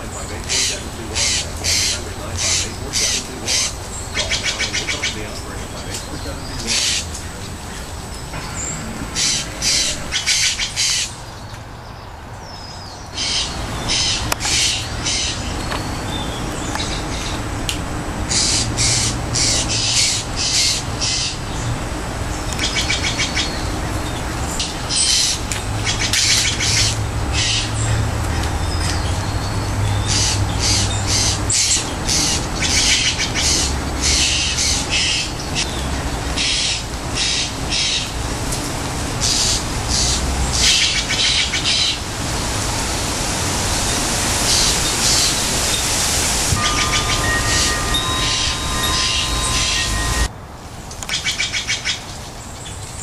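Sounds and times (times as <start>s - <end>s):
jays calling in short notes: 0.1s - 7.7s.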